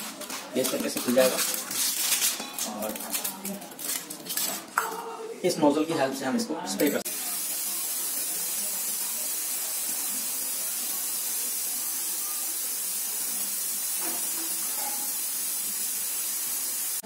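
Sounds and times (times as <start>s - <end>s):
aerosol spray hissing: 7.1s - 17.0s.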